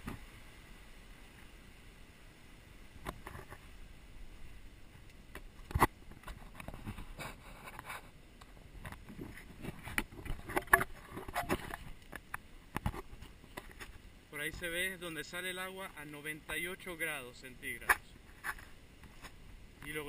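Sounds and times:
handheld camera scraping and knocking: 3.0 - 3.7, 5.4 - 14.0, 17.8 - 19.4.

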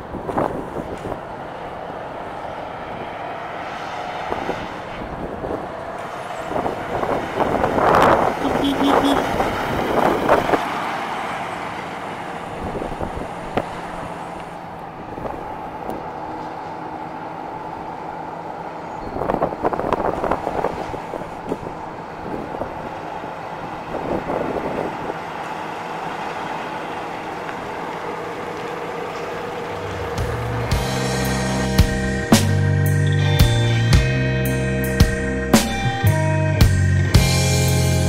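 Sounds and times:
car engine driving past: 24.7 - 32.7.

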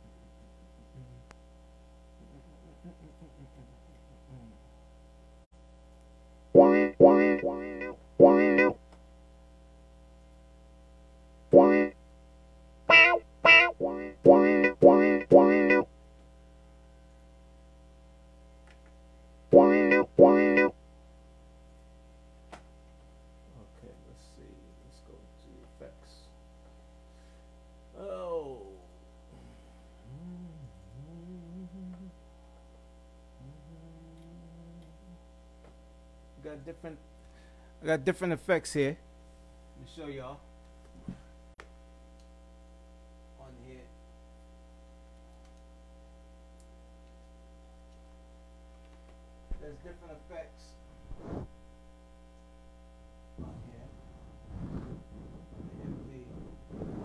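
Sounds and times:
electrical mains hum: 0.0 - 57.0
low wavering voice-like tones: 0.8 - 1.3, 30.0 - 32.2, 33.4 - 35.3
wavering pitched sound: 6.6 - 8.8, 12.9 - 15.9, 19.6 - 20.7
click: 45.1 - 45.7.

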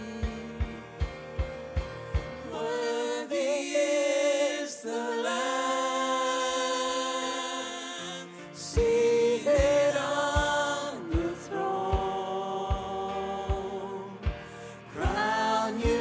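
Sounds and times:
drum beat: 0.0 - 2.6, 8.8 - 16.0
singers in harmony: 0.0 - 16.0.

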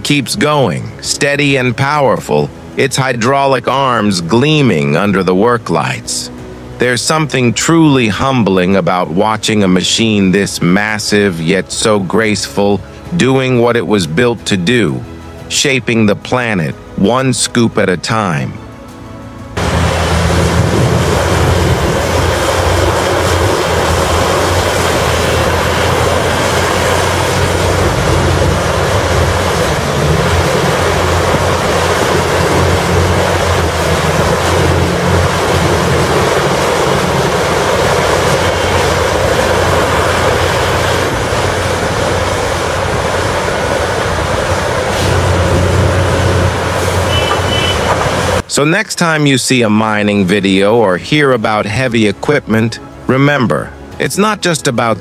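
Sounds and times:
excavator diesel engine rumbling: 18.2 - 48.5.

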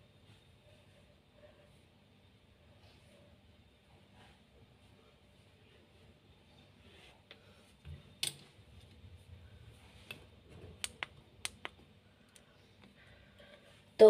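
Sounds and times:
faint sharp clicks and taps: 10.0 - 13.0.

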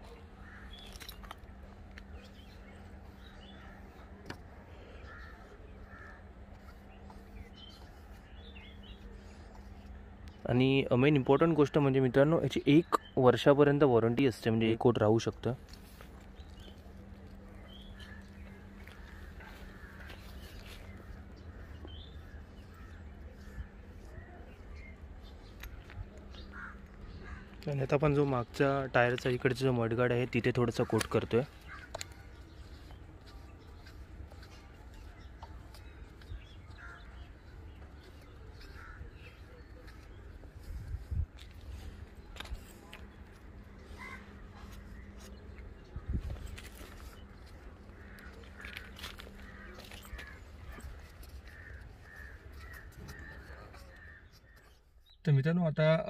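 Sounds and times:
faint bird calls: 0.0 - 10.5, 15.8 - 27.9, 30.8 - 55.2
crows cawing: 0.4 - 1.3, 3.2 - 6.9, 17.9 - 24.9, 25.8 - 27.7, 30.8 - 34.5, 35.8 - 40.2, 43.6 - 45.2, 46.7 - 54.8
low hum: 15.5 - 27.7
steady low rumble: 15.6 - 28.9.

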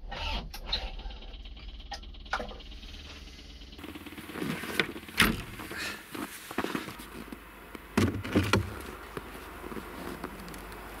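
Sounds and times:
latch clunks: 5.2 - 5.6
metal door shutting: 5.2 - 5.6.

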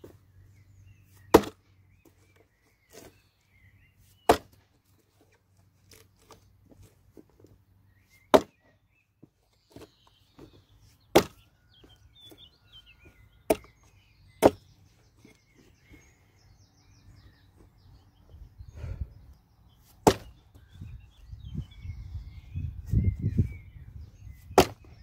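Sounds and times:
birds chirping faintly: 0.0 - 25.0
axe chopping into log: 1.3 - 1.6, 4.2 - 4.6, 8.3 - 8.6, 11.1 - 11.5, 13.5 - 13.7, 14.4 - 14.6, 20.0 - 20.4, 24.5 - 24.9.

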